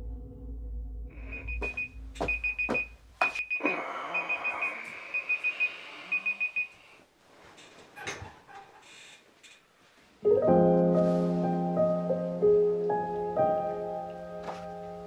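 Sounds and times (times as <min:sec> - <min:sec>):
alarm clock beeping: 0:01.2 - 0:06.8.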